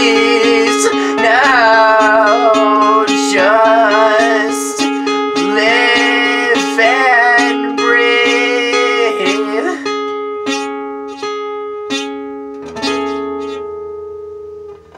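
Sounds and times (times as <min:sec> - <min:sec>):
person singing long notes: 0:00.0 - 0:10.7
acoustic guitar picking: 0:00.0 - 0:14.9.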